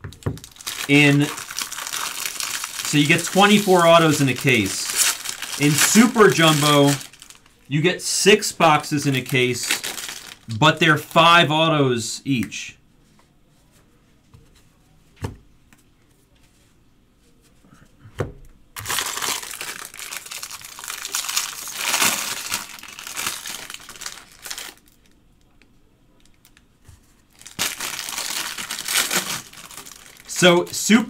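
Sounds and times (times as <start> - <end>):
foil wrappers crinkling: 0.0 - 7.7, 8.4 - 10.5, 18.8 - 25.2, 26.2 - 31.0.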